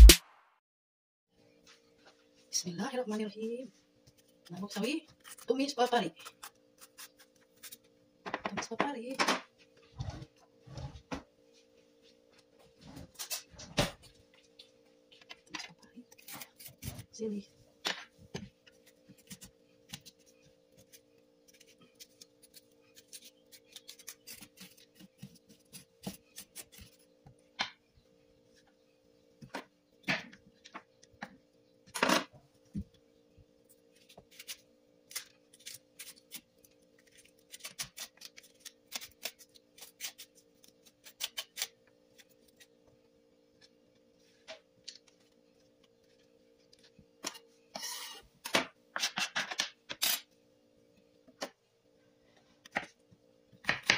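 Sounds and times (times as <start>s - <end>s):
faint steady hum: 1.4s - 53.9s.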